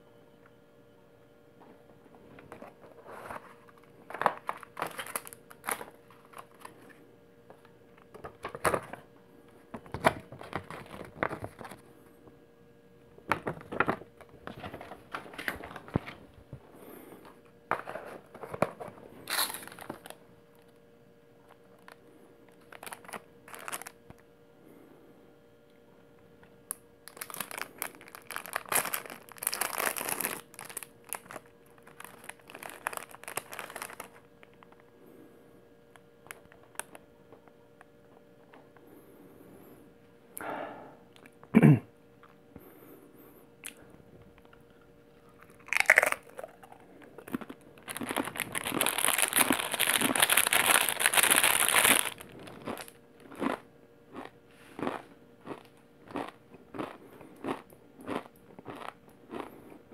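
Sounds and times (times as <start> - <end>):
foil pouch crinkling and tearing: 2.8 - 7.0, 18.2 - 20.7, 21.4 - 24.2, 27.0 - 34.8, 45.4 - 53.0.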